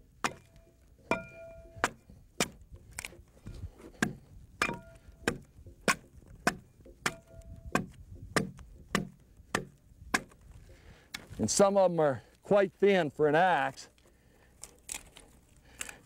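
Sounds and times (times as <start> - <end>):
axe hewing log: 0.2 - 10.6
metallic ring of axe head: 0.3 - 1.7, 4.6 - 5.0.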